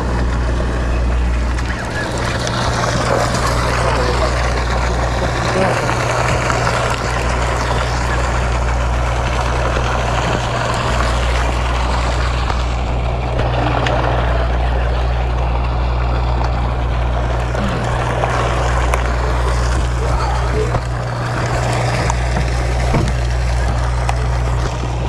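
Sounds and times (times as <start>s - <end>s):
boat engine droning: 0.0s - 25.0s
wind and water rushing: 0.0s - 25.0s.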